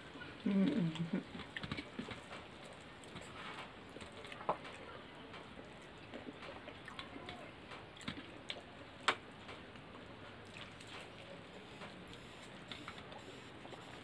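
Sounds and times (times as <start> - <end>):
faint chewing: 0.0 - 14.0.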